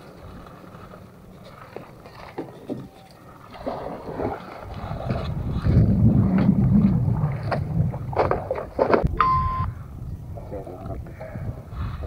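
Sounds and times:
water splashing along hull: 0.0 - 9.2
wind on microphone: 3.6 - 12.0
short beep: 9.2 - 9.7.

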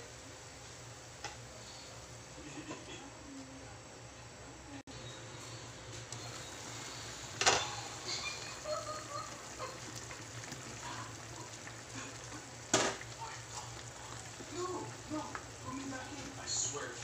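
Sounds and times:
broth bubbling in metal pan: 6.1 - 17.0.

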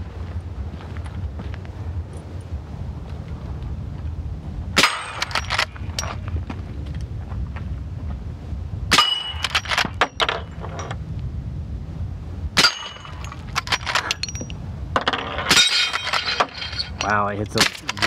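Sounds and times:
bullets clanging on steel plates: 4.8 - 6.2, 8.9 - 10.9, 12.6 - 18.0.

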